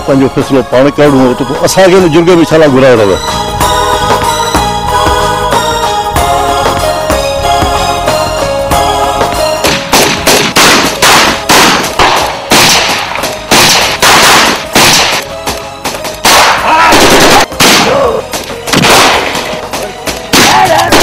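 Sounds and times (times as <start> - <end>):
background music: 0.0 - 21.0
echoing gunshots: 9.6 - 15.3, 16.2 - 19.6, 20.3 - 21.0.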